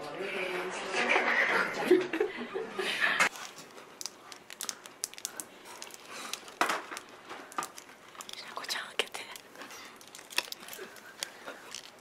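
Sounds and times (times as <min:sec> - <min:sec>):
plastic wrapper crinkling: 0:03.3 - 0:12.0.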